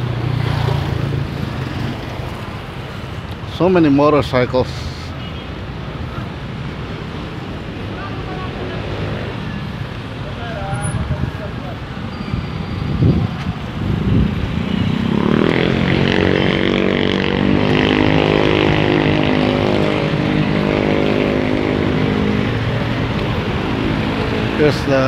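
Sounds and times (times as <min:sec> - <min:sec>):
cars passing: 0:00.0 - 0:25.0
motorcycles passing: 0:00.0 - 0:25.0.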